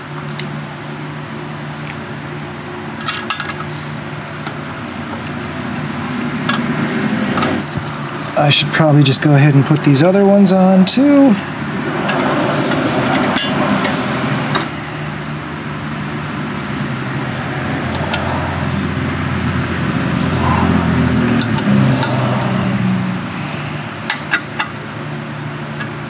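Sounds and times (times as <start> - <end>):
low motor hum: 0.0 - 8.4, 11.4 - 26.0.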